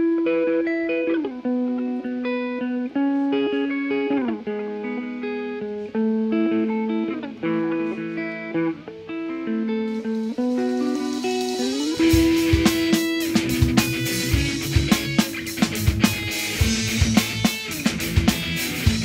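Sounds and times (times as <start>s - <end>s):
electric guitar melody: 0.0s - 19.0s.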